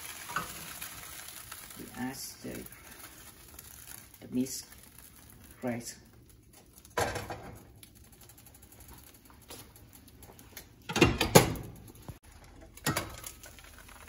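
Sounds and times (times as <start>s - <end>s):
batter sizzling in a hot pan: 0.0s - 10.3s, 12.1s - 14.0s.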